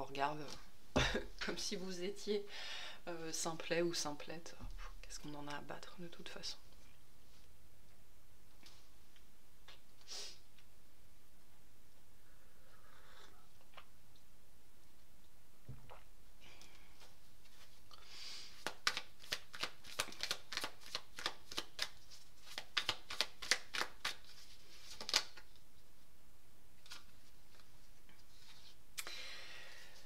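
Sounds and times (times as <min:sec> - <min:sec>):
cards sliding rustle: 0:18.5 - 0:25.4
cards being shuffled: 0:18.5 - 0:25.6, 0:26.8 - 0:28.8.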